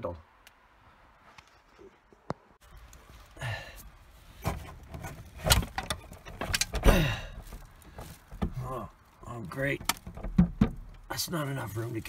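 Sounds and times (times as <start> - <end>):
window creaking: 4.3 - 12.0
window knocks and clunks: 4.4 - 8.8, 9.7 - 11.1.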